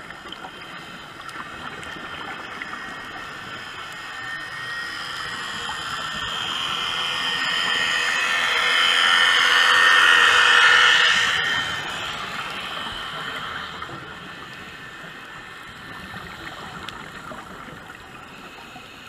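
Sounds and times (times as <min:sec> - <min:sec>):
motorboat engine heard underwater: 0:00.0 - 0:19.0.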